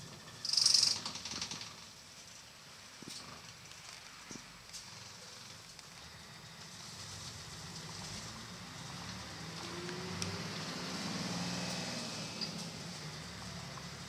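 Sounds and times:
bus engine accelerating: 6.1s - 14.0s.

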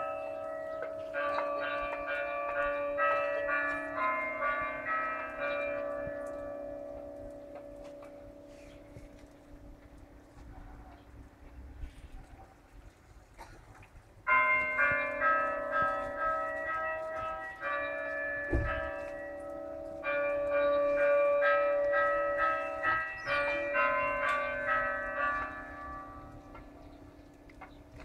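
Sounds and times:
church bells pealing: 0.0s - 11.0s, 14.2s - 28.0s.

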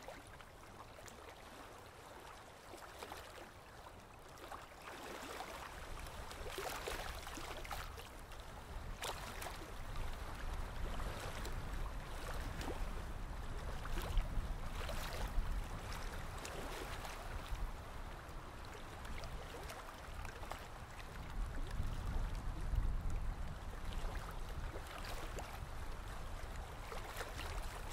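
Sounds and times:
low wind rumble: 20.9s - 24.8s.

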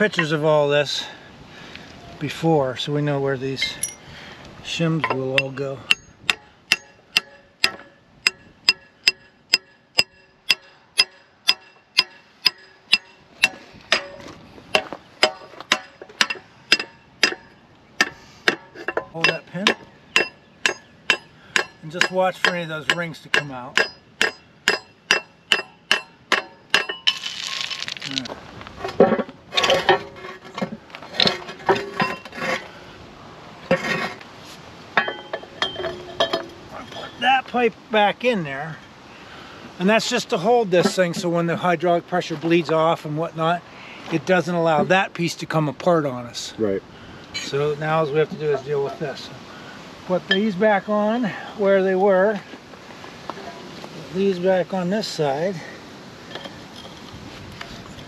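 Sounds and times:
metal scraping clank: 3.5s - 4.0s, 5.0s - 22.9s, 28.8s - 32.8s, 33.6s - 34.2s, 35.0s - 37.2s
metal parts clanking: 3.6s - 4.0s, 6.7s - 21.2s, 23.8s - 32.7s, 35.0s - 37.2s
hammer striking steel pipe: 5.0s - 27.2s.

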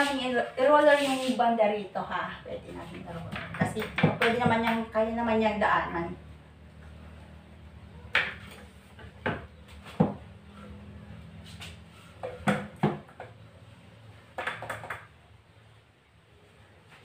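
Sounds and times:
pole and roller knocking: 3.2s - 5.0s.

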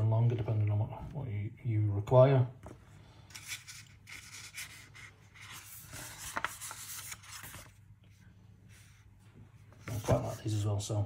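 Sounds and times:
paper pages rustling: 2.6s - 8.2s, 9.7s - 10.6s.

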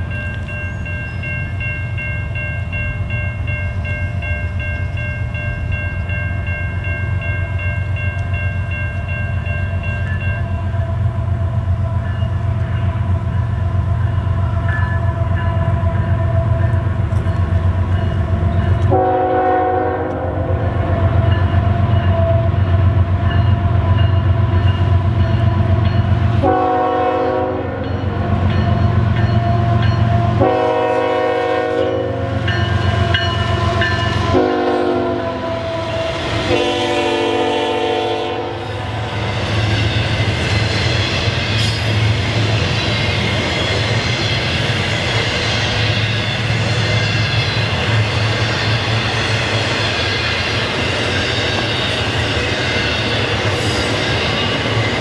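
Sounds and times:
diesel locomotive engines rumbling: 0.0s - 55.0s
locomotive air horn blasts: 18.8s - 22.6s, 26.4s - 27.9s, 29.7s - 39.1s.

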